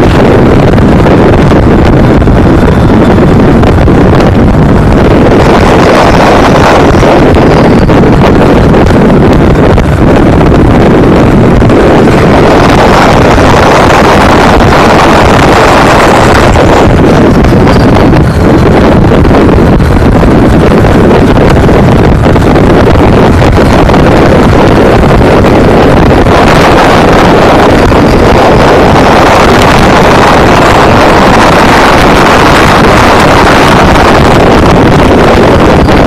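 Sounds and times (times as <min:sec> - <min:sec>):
wind buffeting microphone: 0:00.0 - 0:36.0.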